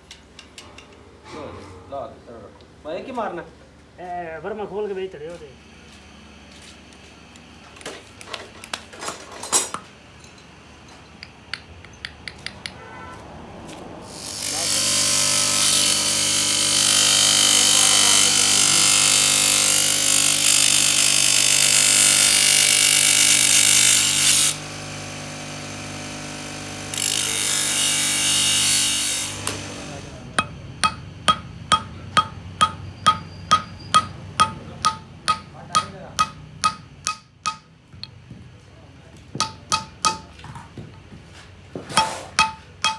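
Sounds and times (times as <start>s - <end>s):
grinder wheel grinding steel: 14.1s - 24.6s, 25.4s - 37.6s
grinder motor hum: 14.4s - 33.3s
hammer ringing on metal: 30.4s - 37.8s, 39.4s - 40.4s, 42.0s - 42.9s.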